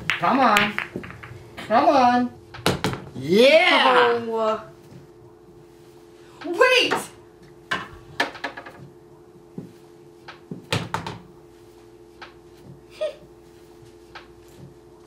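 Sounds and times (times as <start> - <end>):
pool balls clicking: 0.0 - 1.6, 6.9 - 9.0, 10.2 - 11.3
steady hum: 0.0 - 15.0.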